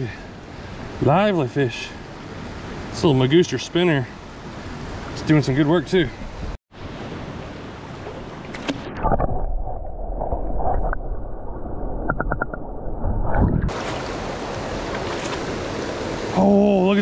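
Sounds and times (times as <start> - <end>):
muffled underwater rushing: 7.7 - 16.4
splash going under: 13.7 - 15.6
stream rapids rushing: 13.7 - 17.0.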